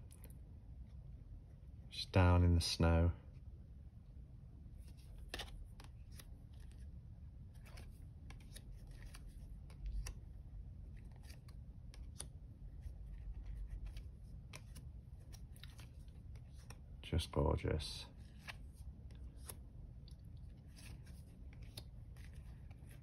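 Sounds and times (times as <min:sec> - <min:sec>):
cards clicking and sliding: 0:04.8 - 0:06.8, 0:07.5 - 0:16.8, 0:18.2 - 0:23.0.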